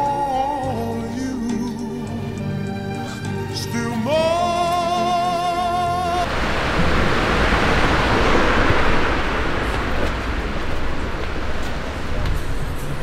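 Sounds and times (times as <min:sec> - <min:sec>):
traffic rushing hiss and rumble: 0:04.5 - 0:13.0.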